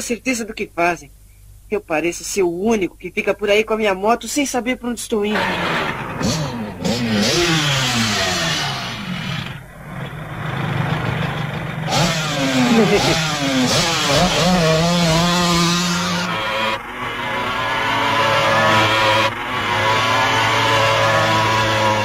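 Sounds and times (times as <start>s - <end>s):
motorcycle engine revving: 5.3s - 22.0s.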